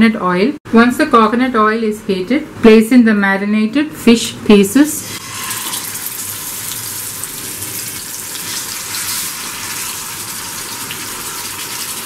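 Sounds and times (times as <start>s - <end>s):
fish sizzling in frying pan: 5.2s - 12.0s.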